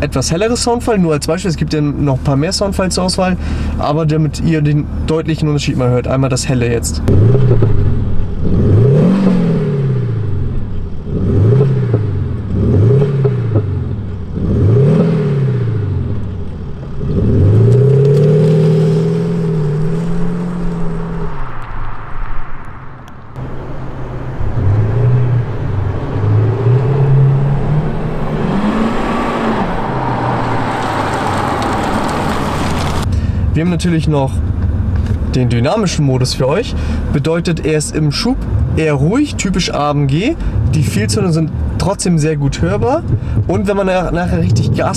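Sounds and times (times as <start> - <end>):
synthetic engine exhaust revving: 7.1 - 21.3, 23.4 - 32.3.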